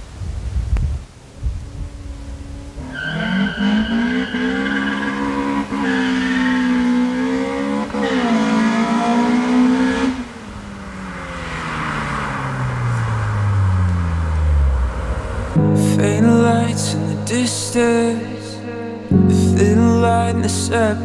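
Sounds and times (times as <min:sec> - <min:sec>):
car engine revving: 0:01.8 - 0:15.7.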